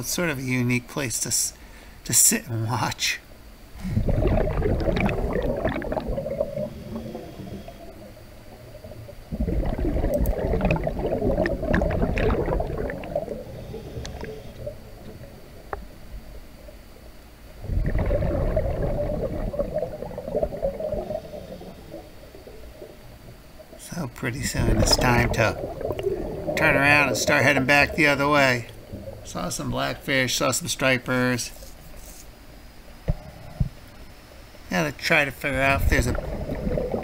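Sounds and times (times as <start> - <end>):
underwater breath bubbling: 3.8 - 15.7, 17.6 - 23.2, 24.5 - 29.4, 35.7 - 37.0.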